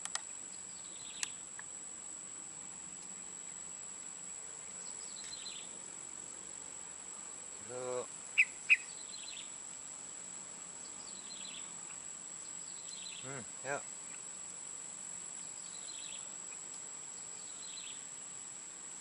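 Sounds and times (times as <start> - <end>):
sharp clicks: 0.0 - 0.3
faint bird chirps: 0.3 - 1.4, 4.6 - 5.7, 7.6 - 9.6, 10.8 - 14.4, 15.4 - 18.1
high-pitched insect drone: 7.5 - 9.6.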